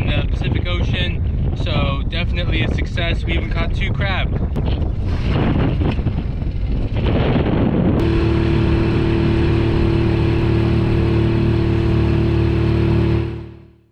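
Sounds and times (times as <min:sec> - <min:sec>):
wind buffeting microphone: 0:00.0 - 0:13.4
outboard motor running: 0:04.9 - 0:13.9.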